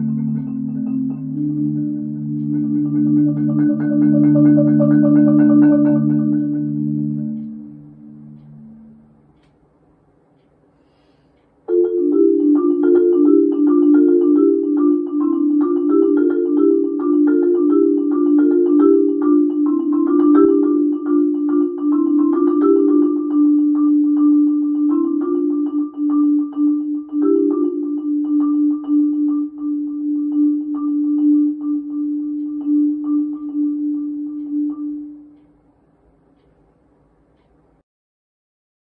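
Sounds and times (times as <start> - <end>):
marimba playing: 0.0 - 9.4, 11.7 - 35.4.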